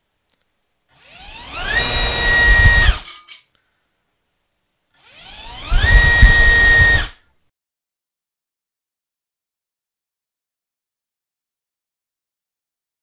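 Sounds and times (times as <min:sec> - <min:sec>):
drone motor whining: 0:01.0 - 0:03.0, 0:05.0 - 0:07.2.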